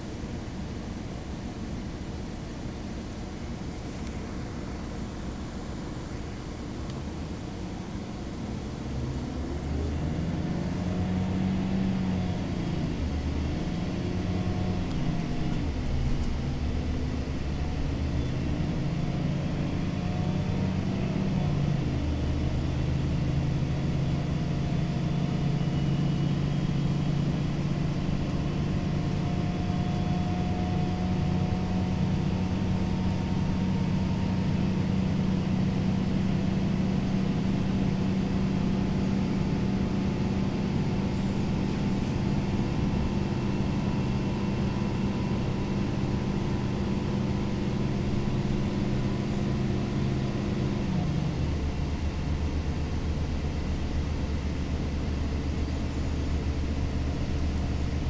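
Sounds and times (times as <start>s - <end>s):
bus diesel engine running: 0.0s - 58.0s
road and tyre noise: 0.0s - 58.0s.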